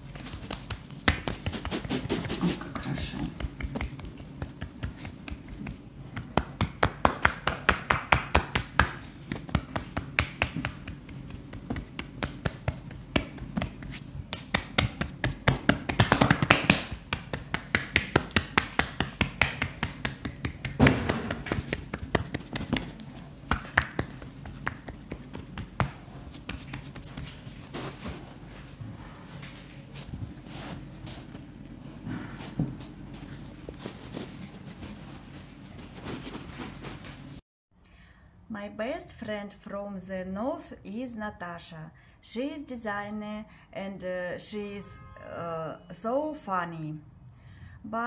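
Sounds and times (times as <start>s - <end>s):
hands slapping body: 0.2s - 27.4s.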